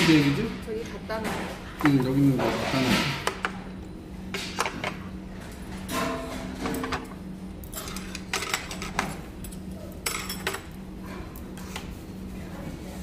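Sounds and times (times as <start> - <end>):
low room hum: 0.0 - 13.0
chopsticks and bowls clinking: 7.6 - 10.8.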